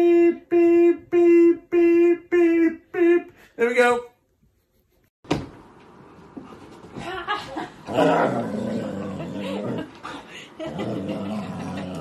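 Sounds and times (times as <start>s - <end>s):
dog growling in play: 7.9s - 12.0s.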